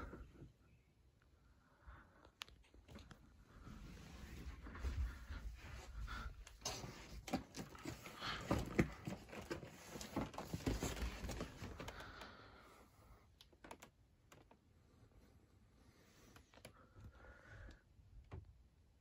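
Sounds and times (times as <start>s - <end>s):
cardboard cartons knocking and rustling: 6.6s - 11.9s.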